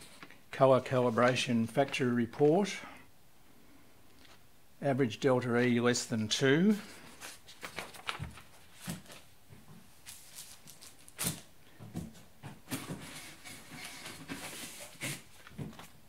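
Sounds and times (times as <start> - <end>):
paper and cardboard rustling: 6.6 - 9.3, 10.0 - 16.0.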